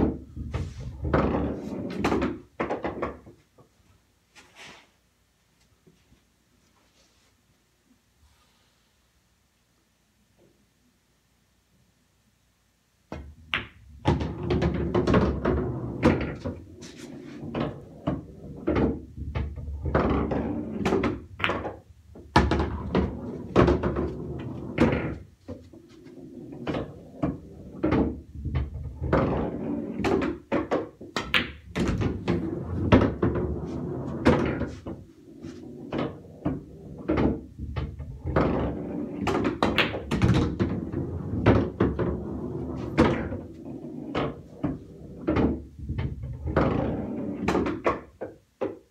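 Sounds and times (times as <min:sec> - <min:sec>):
pool balls clicking: 0:00.0 - 0:03.4, 0:13.1 - 0:48.9
balls rolling through ball return: 0:00.0 - 0:03.8, 0:13.1 - 0:48.9
balls knocking off cushions: 0:13.1 - 0:25.8, 0:26.6 - 0:43.6.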